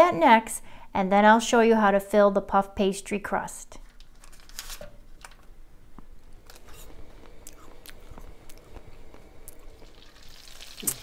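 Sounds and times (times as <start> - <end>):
paper wrapper rustling: 3.8 - 5.5
butter sizzling in a pan: 6.6 - 11.0.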